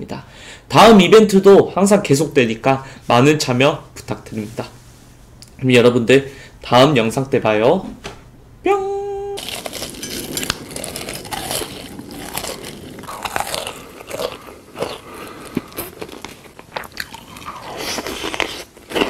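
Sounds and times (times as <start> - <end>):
crunchy food being chewed: 9.4 - 19.0.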